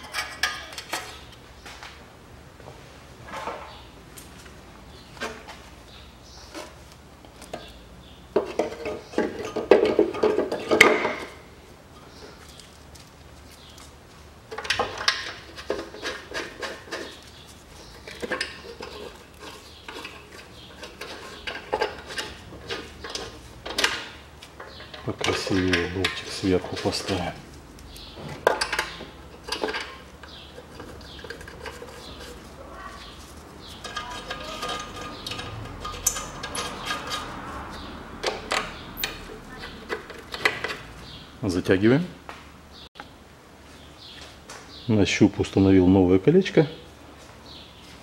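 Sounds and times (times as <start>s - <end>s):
sheet metal clinking and rattling: 0.0s - 1.3s, 28.0s - 32.4s, 33.0s - 41.2s
metal clicks and knocks: 14.5s - 17.2s, 17.9s - 27.2s, 27.9s - 32.4s, 33.6s - 41.0s
metal scraping: 14.5s - 41.2s.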